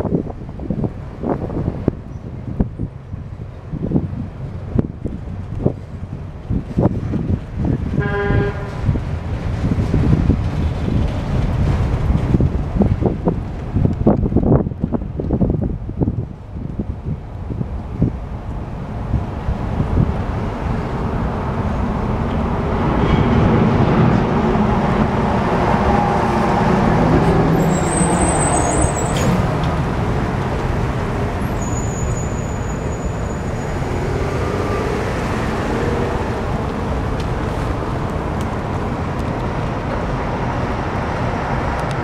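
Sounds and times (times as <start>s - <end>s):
train wheels rumbling and clattering: 0.0s - 42.0s
high wheel squeal: 27.4s - 29.6s, 31.4s - 34.9s.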